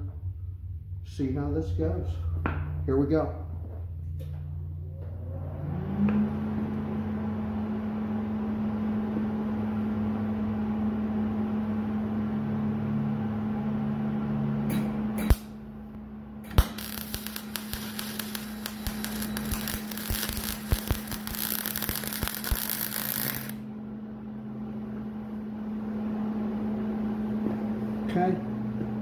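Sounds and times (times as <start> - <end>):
machine hum: 0.0 - 29.0
welding arc pop: 14.7 - 15.6, 16.4 - 23.6
welding crackle: 16.5 - 23.6.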